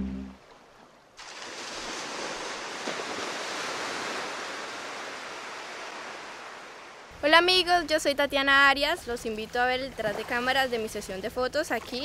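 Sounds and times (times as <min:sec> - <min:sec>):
ocean surf rushing: 0:01.2 - 0:07.1.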